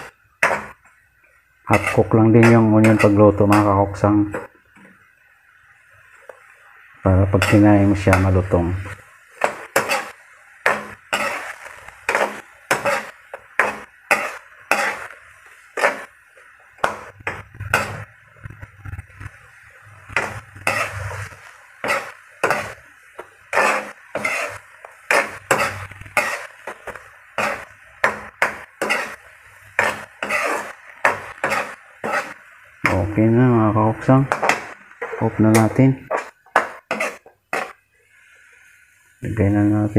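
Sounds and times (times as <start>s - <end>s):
spatula scraping a wok: 0.0s - 0.8s, 1.7s - 4.8s, 7.2s - 33.4s, 34.2s - 38.9s
sauce simmering: 8.0s - 32.9s.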